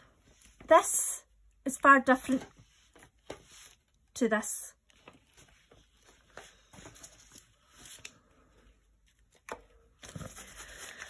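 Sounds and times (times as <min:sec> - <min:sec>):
faint paper rustling: 0:02.1 - 0:04.0, 0:04.8 - 0:11.0.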